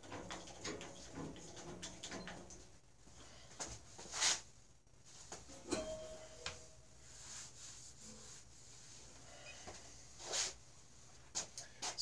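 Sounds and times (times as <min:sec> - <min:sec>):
metallic ring: 0:05.6 - 0:06.9.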